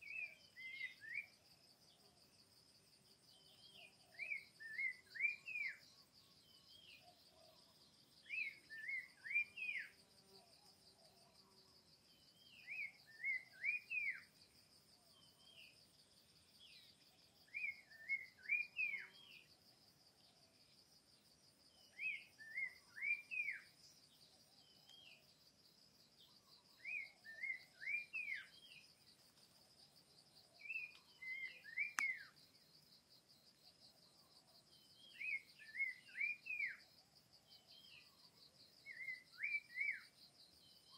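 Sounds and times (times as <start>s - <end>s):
bird whistling song: 0.0s - 1.3s, 3.4s - 5.8s, 8.2s - 10.0s, 12.3s - 14.3s, 17.5s - 19.5s, 21.8s - 23.8s, 26.8s - 28.8s, 30.6s - 32.4s, 35.0s - 36.8s, 38.8s - 40.1s
insect trill: 0.0s - 40.9s.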